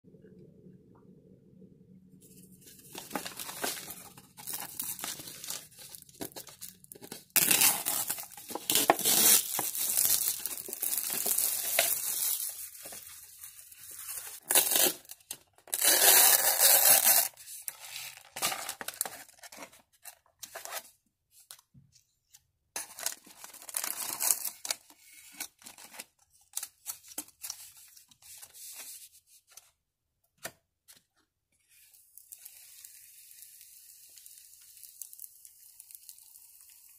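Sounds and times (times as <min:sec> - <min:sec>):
plastic sachets rustling: 0:02.7 - 0:15.1
packaging tearing and crinkling: 0:02.8 - 0:17.4, 0:18.0 - 0:19.7, 0:22.8 - 0:27.6.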